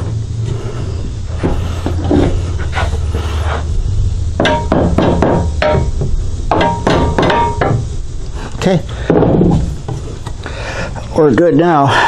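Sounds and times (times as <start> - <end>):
hammer knocking on wood: 4.4 - 7.8.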